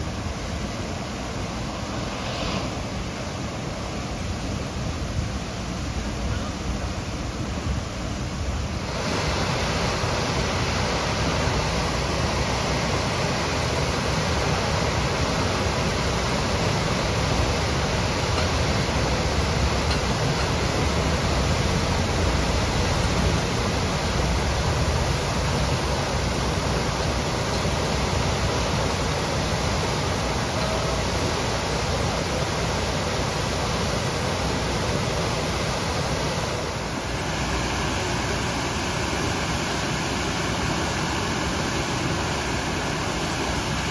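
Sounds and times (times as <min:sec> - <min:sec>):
water gushing from hydrant: 0:00.0 - 0:43.9.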